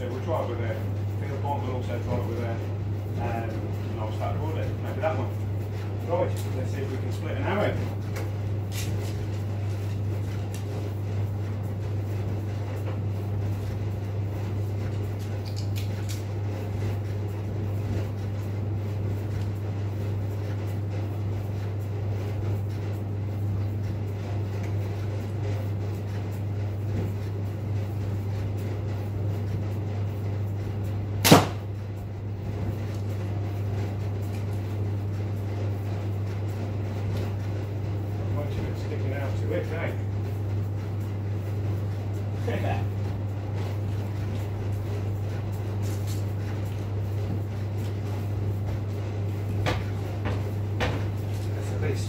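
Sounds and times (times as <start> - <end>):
steady low hum: 0.0 - 52.0
arrow striking target: 31.2 - 31.7.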